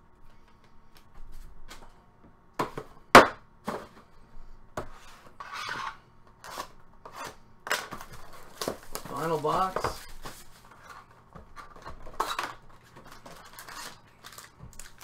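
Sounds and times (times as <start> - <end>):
cardboard scraping on table: 4.8 - 7.4.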